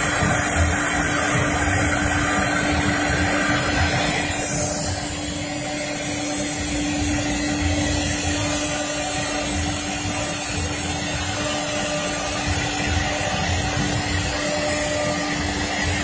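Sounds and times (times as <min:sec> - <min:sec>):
high spindle whine: 0:00.0 - 0:16.0
router machine hum and rumble: 0:00.0 - 0:16.0.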